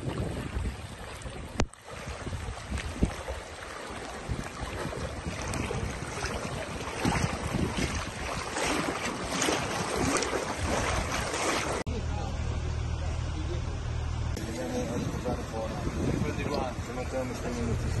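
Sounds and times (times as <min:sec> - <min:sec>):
wind rumbling on microphone: 0:00.0 - 0:11.8, 0:14.4 - 0:18.0
water sloshing around wading legs: 0:00.0 - 0:11.9.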